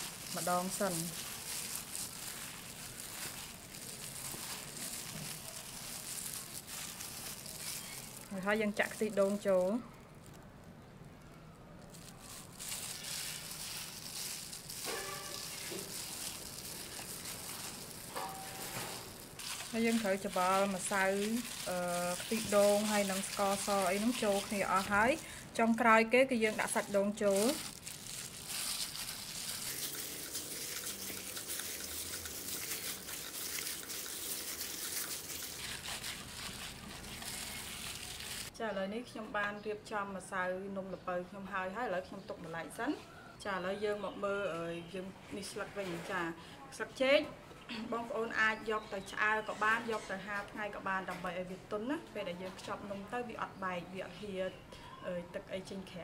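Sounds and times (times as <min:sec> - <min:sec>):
hand mixing wet food squishing: 0:00.0 - 0:10.4, 0:11.8 - 0:38.5.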